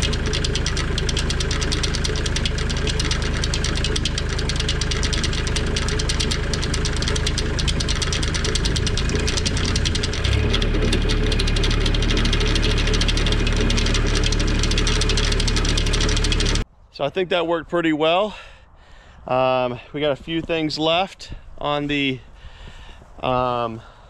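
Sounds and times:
tractor diesel engine clattering: 0.0s - 16.6s.

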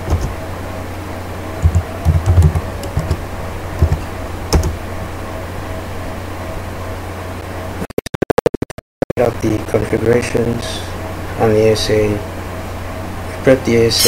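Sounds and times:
keyboard keys clicking: 0.0s - 0.4s, 1.6s - 3.2s, 3.8s - 4.8s
steady low hum: 0.0s - 7.8s, 9.2s - 14.0s.

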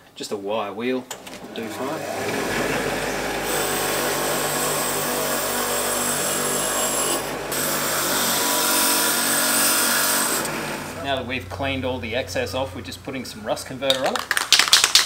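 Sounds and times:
grinder motor hum: 1.1s - 11.2s
wire wheel hissing on metal: 1.4s - 11.2s.

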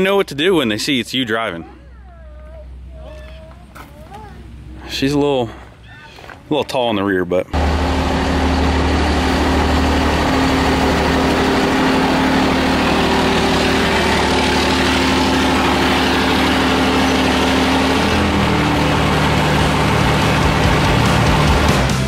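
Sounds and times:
diesel truck engine idling: 7.5s - 22.0s.

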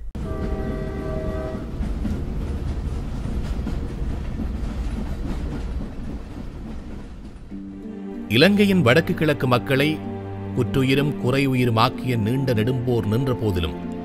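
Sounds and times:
moving train rumble: 0.0s - 12.9s
train horn blast: 0.2s - 1.8s.

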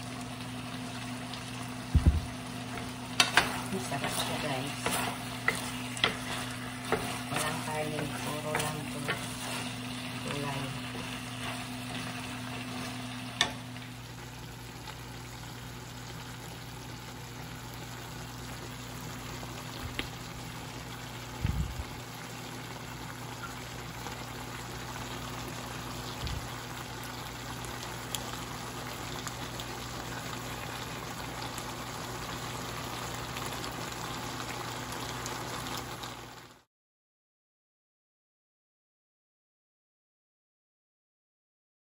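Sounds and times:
food sizzling in frying pan: 0.0s - 36.7s
low thump: 1.9s - 2.4s
wooden spatula scraping pan: 2.7s - 13.6s.

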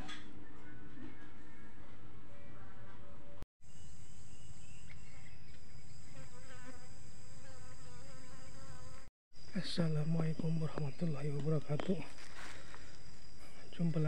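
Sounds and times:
high-pitched insect buzzing: 3.7s - 9.1s.

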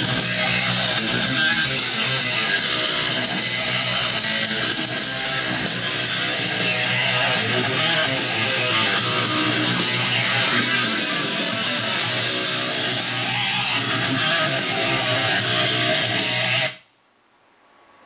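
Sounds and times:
guitar music over loudspeaker: 0.0s - 16.7s.

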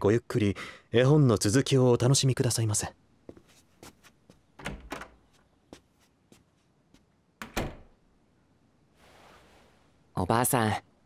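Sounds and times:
door shutting with a thud: 7.4s - 8.0s.

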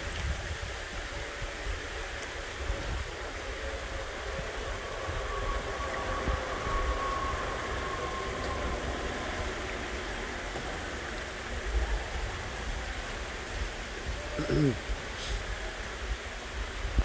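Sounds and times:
wind on microphone: 0.0s - 17.0s
faint thin whine: 2.8s - 12.0s.

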